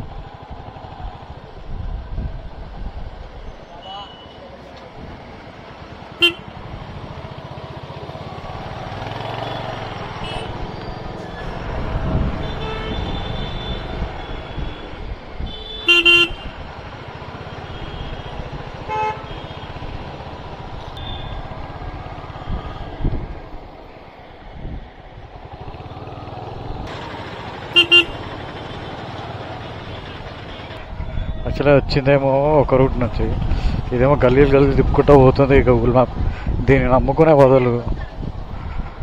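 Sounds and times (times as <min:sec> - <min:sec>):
motorcycle engine and road rumble: 0:00.0 - 0:39.0
vehicle horn toots: 0:06.2 - 0:06.5, 0:09.3 - 0:11.0, 0:12.4 - 0:16.6, 0:17.6 - 0:19.8, 0:21.0 - 0:21.4, 0:27.7 - 0:28.5.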